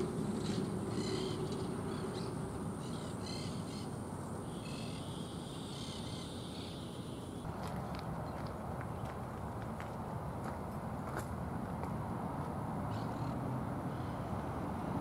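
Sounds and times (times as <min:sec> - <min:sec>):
bird calls: 0:00.0 - 0:07.4.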